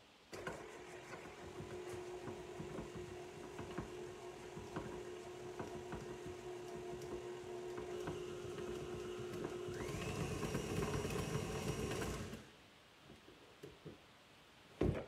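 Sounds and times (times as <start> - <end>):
stand mixer whining: 0.6 - 12.4.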